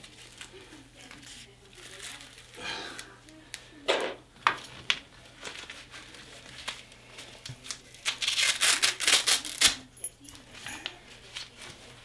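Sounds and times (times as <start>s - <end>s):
velcro rasping: 8.0s - 9.8s.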